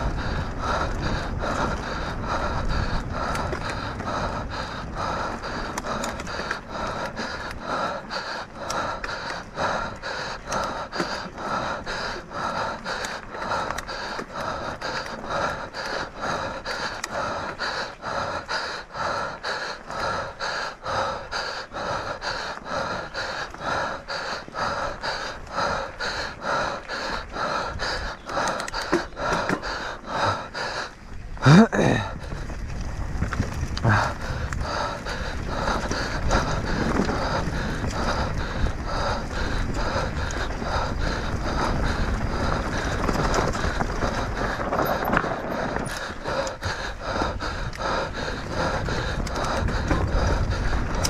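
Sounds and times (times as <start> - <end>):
person panting hard: 0.0 - 51.0.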